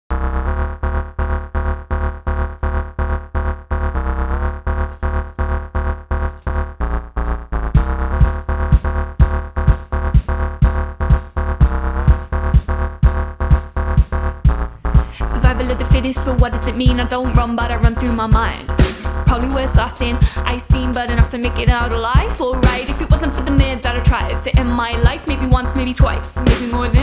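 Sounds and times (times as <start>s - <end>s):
heavy bass: 0.1s - 27.0s
pulsing synth chords: 0.1s - 27.0s
kick drum beat: 7.7s - 27.0s.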